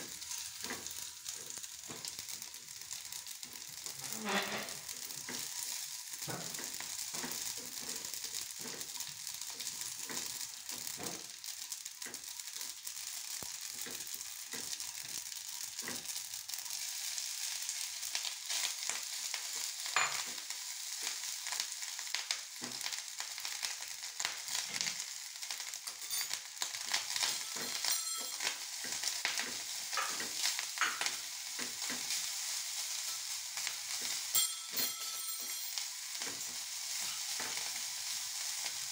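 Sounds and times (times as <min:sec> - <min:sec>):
seeds sizzling in hot oil: 0:00.0 - 0:38.9
spatula scraping pan: 0:00.1 - 0:02.1, 0:03.8 - 0:11.1.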